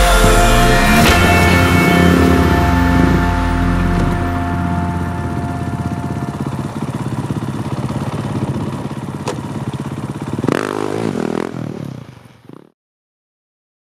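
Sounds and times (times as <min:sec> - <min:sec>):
dirt bike engine idling: 0:00.0 - 0:12.7.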